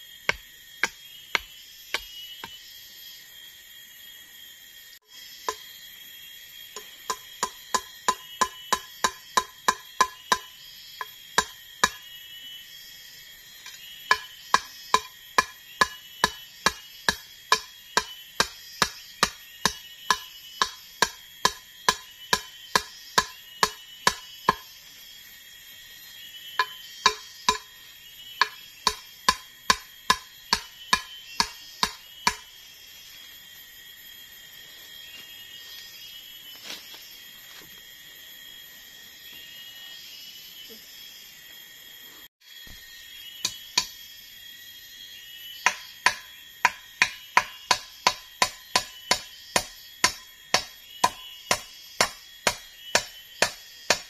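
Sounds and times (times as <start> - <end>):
insects trilling: 0.0 - 54.0
wooden knocks of hammering: 7.1 - 10.5, 26.6 - 27.7, 28.4 - 32.4, 45.7 - 54.0.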